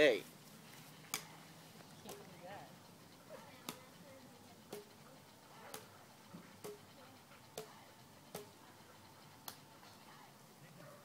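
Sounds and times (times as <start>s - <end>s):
racket striking shuttlecock: 1.1s - 1.3s, 5.7s - 5.9s, 6.6s - 6.8s, 7.6s - 8.5s.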